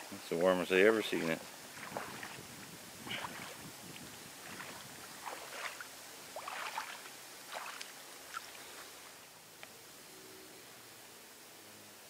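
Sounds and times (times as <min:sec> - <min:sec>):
air fizzing up through gravel: 0:00.4 - 0:09.1.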